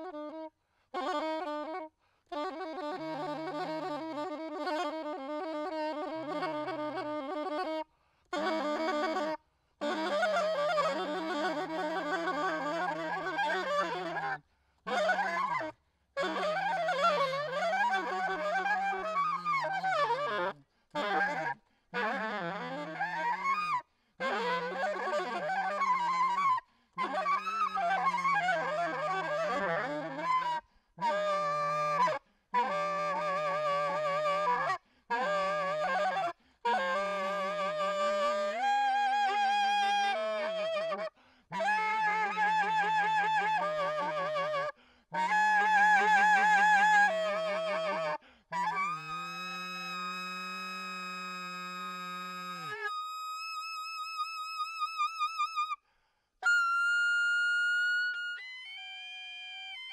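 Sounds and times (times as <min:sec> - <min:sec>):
solo saxophone improvisation: 0:00.0 - 0:59.9
quick breaths: 0:41.2 - 0:41.5, 0:44.8 - 0:45.1, 0:48.2 - 0:48.5.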